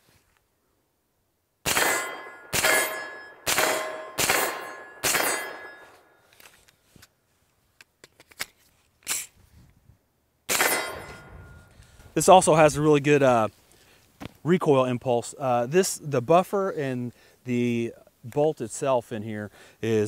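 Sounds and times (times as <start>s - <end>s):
gunshots: 1.7s - 5.9s, 10.5s - 11.3s
metallic ring: 1.9s - 6.2s, 10.6s - 11.8s.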